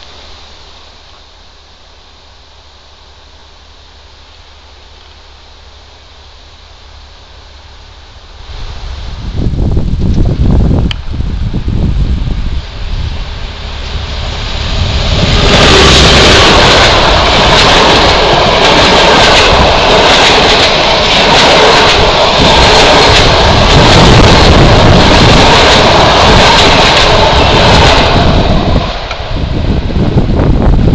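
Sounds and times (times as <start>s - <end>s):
train rushing past: 2.2s - 30.9s
wheels clicking on rail: 12.3s - 30.8s.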